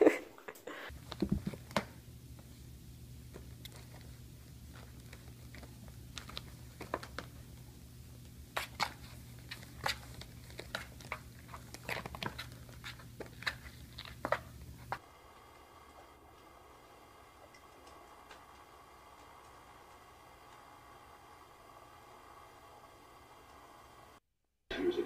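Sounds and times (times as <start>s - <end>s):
kittens scratching cardboard: 3.3s - 7.5s, 8.5s - 15.0s.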